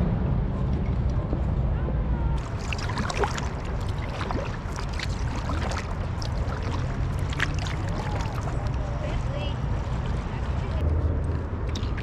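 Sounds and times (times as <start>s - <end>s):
steady low rumble: 0.0s - 12.0s
paddle splashing water: 2.4s - 10.8s, 11.7s - 12.0s.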